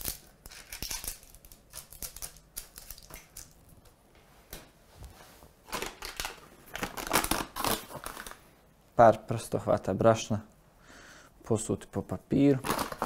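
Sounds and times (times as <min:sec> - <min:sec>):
baking paper rustling and crinkling: 0:12.5 - 0:13.0.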